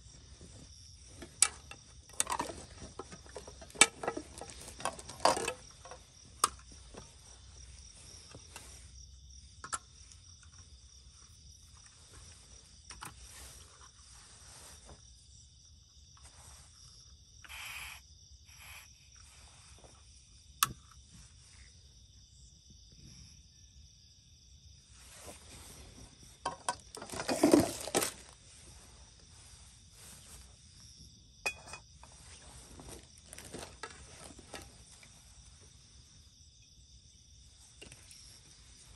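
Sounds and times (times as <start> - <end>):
crickets chirping: 0.0 - 38.9
camping stove clicks and knocks: 31.5 - 31.9.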